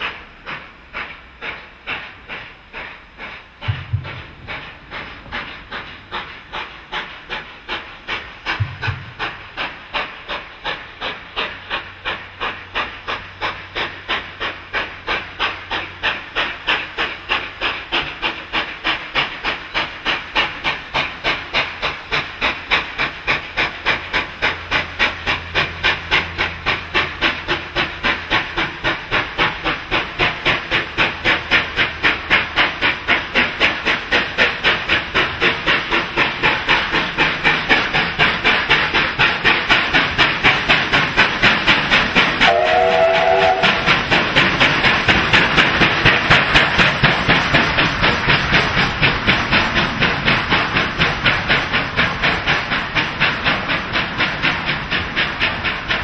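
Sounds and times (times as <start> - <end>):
steam locomotive chuffing: 0.0 - 56.0
steam whistle blast: 42.5 - 43.9.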